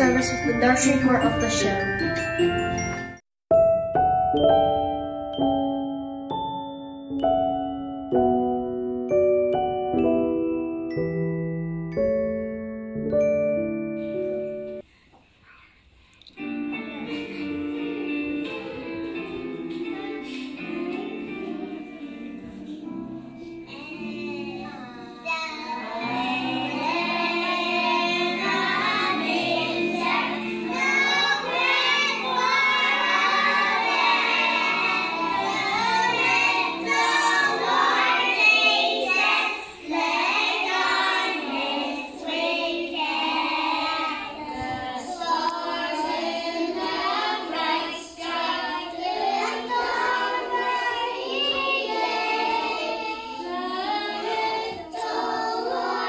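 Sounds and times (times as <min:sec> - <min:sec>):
instrumental accompaniment: 0:00.0 - 0:14.9, 0:16.3 - 0:56.0
children singing: 0:16.8 - 0:56.0.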